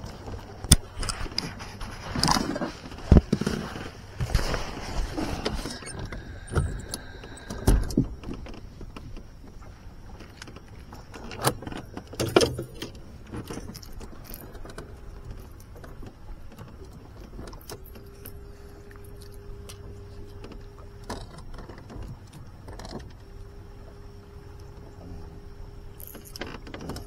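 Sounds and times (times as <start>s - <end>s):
steady hum: 0.0s - 27.0s
gear clinking and knocking: 11.3s - 16.0s, 26.0s - 27.0s.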